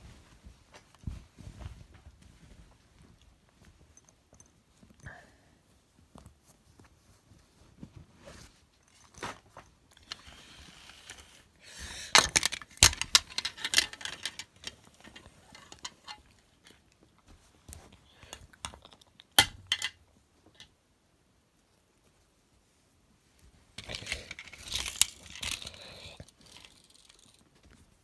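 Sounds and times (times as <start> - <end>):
bedding rustling: 0.0 - 11.6
toys clicking and knocking: 12.1 - 16.8, 18.3 - 20.7, 23.8 - 27.4.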